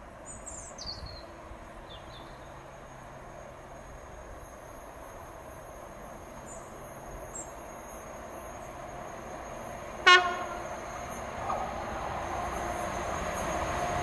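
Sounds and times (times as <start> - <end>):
diesel locomotive engine working: 2.4 - 14.0
short train horn toot: 10.0 - 10.7.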